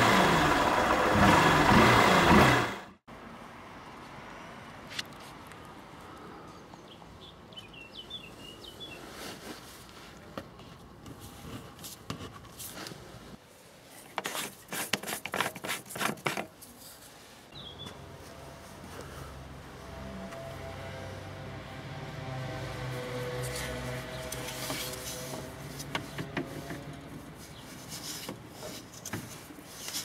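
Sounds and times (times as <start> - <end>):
bird chirping: 6.6 - 9.0, 17.5 - 18.0.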